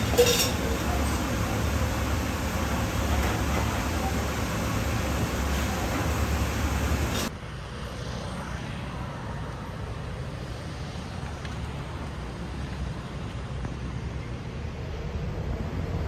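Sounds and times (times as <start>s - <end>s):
gas range kitchen noise: 0.0s - 7.3s
distant road traffic hum: 0.0s - 16.0s.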